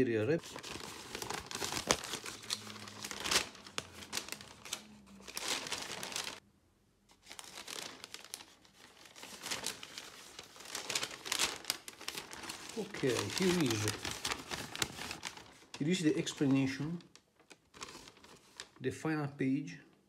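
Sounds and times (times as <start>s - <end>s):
paper crinkling and rustling: 0.0s - 6.4s, 7.1s - 18.8s.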